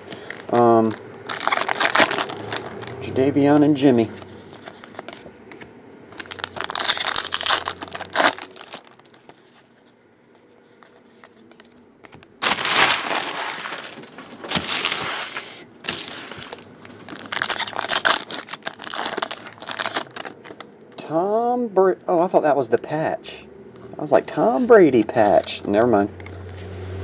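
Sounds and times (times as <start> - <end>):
plastic wrappers crinkling and tearing: 0.1 - 3.1, 6.1 - 9.8, 10.8 - 20.7.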